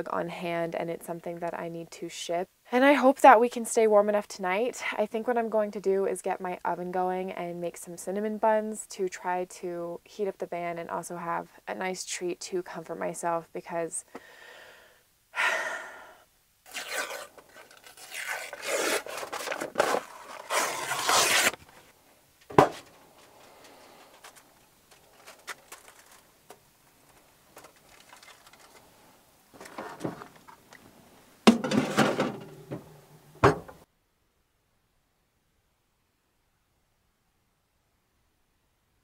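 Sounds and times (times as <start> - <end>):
paper rustling and tearing: 16.7 - 21.8, 24.1 - 26.3, 27.6 - 28.9.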